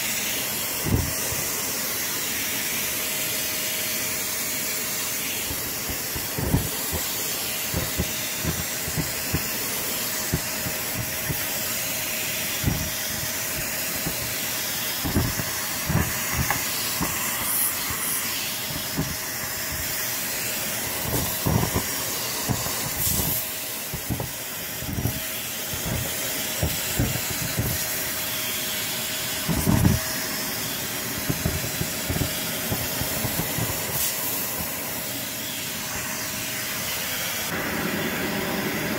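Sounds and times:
vacuum cleaner running: 0.0 - 38.9
debris knocking up vacuum wand: 5.2 - 35.1.

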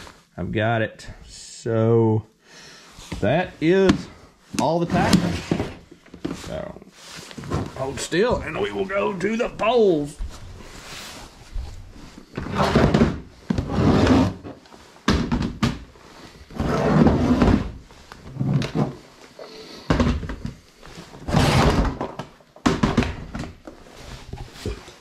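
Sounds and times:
plastic boxes thunking and rattling: 3.8 - 6.4, 12.3 - 16.0, 16.6 - 19.1, 19.9 - 25.0.

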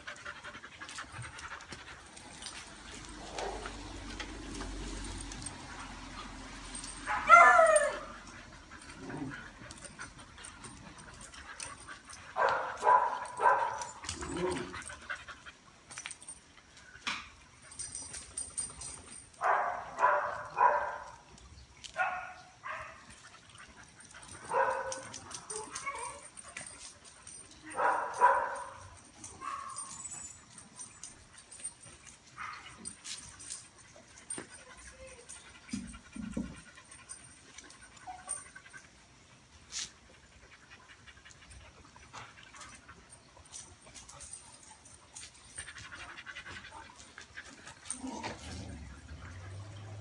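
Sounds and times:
dogs barking and yipping: 0.0 - 16.4, 17.6 - 50.0
dog yelping: 7.1 - 8.2.

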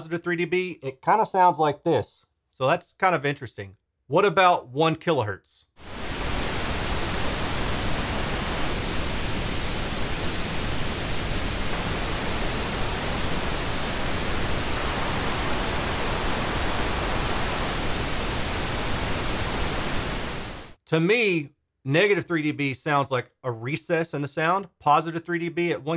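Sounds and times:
pink noise test signal: 5.8 - 20.8.

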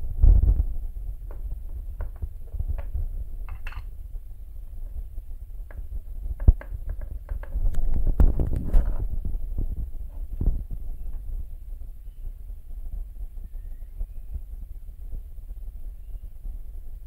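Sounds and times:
metal tin clicks and taps: 3.5 - 3.9.

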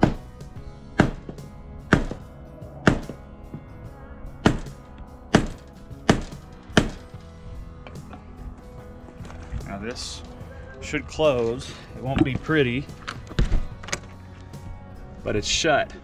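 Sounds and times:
hammer striking hammer on metal: 1.0 - 2.2, 2.8 - 3.2, 4.4 - 7.0.

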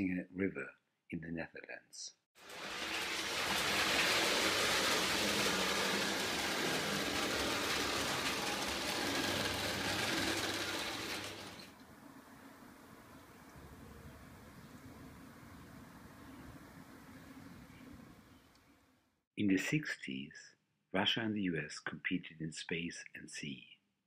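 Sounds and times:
toy train running on track: 2.4 - 11.8.

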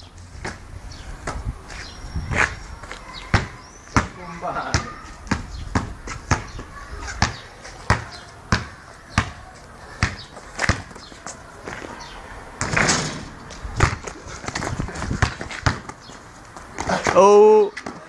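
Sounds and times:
basketball bouncing on pavement: 0.4 - 1.5, 2.3 - 18.0.

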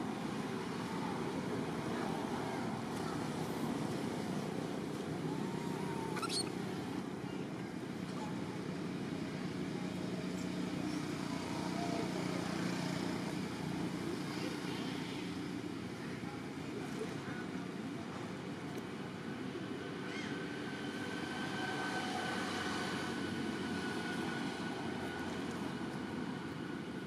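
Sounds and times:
distant traffic: 0.0 - 27.0
high rising squeak: 6.0 - 6.6.

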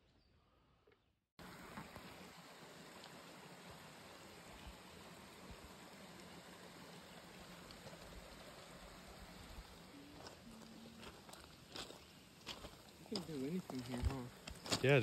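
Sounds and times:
faint outdoor hiss: 1.4 - 15.0.

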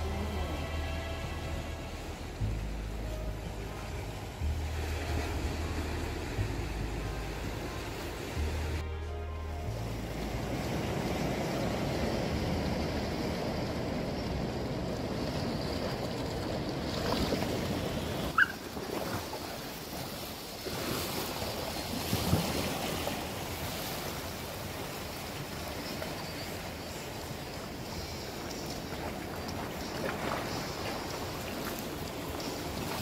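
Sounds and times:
ocean surf on rocky shore: 0.0 - 8.8, 9.7 - 33.0.

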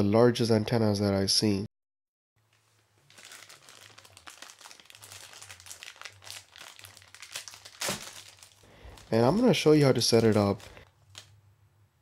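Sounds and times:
plastic bag crinkling: 2.5 - 11.4.

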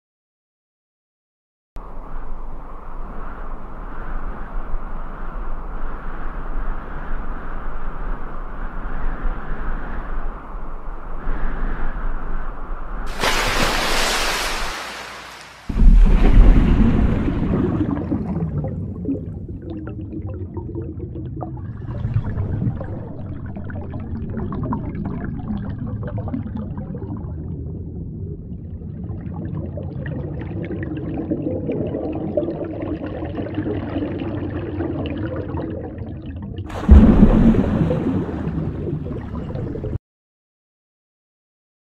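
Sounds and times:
loud boom: 15.7 - 17.5, 36.7 - 38.8
bubbling and gurgling water: 15.7 - 40.0
low underwater rumble: 15.7 - 40.0.

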